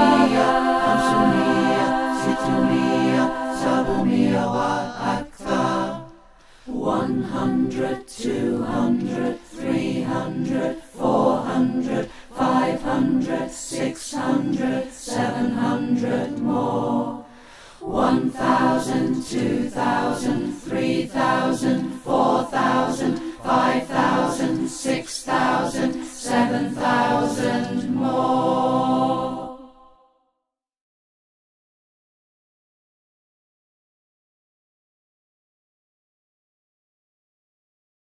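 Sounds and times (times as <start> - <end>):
choir singing a cappella: 0.0 - 30.3.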